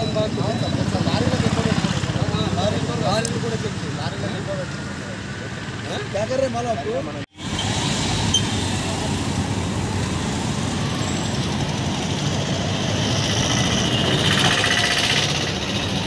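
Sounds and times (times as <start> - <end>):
street traffic: 0.0 - 16.0
large vehicle engine running: 10.1 - 16.0.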